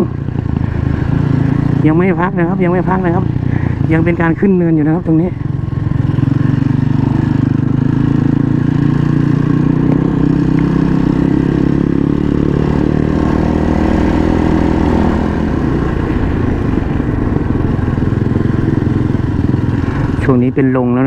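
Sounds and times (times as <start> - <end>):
motorcycle engine under load: 0.0 - 21.0.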